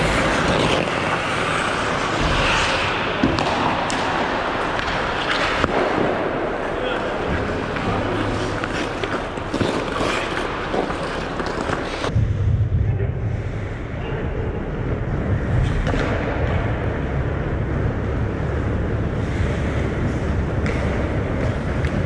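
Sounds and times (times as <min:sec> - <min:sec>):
skate scrapes on ice: 0:00.0 - 0:03.0, 0:07.0 - 0:12.1
hockey stick clatter: 0:00.0 - 0:06.2, 0:07.0 - 0:12.1
muffled low rumble: 0:12.1 - 0:22.0.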